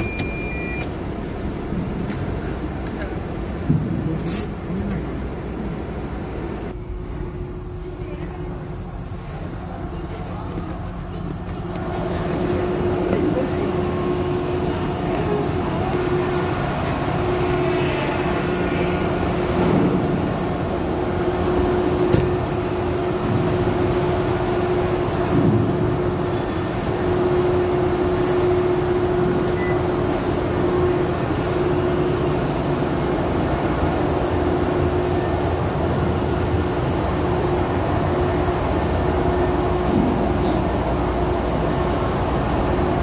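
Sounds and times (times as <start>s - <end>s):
machinery drone: 10.6s - 43.0s.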